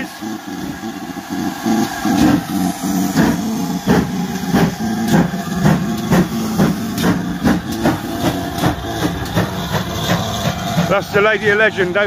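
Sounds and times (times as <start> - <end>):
steam locomotive chuffing: 0.0 - 12.0
low rumble: 0.5 - 12.0.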